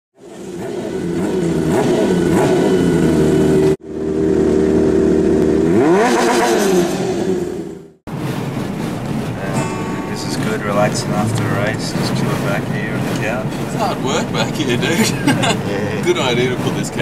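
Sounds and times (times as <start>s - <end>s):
motorcycle engine revving: 0.2s - 17.0s.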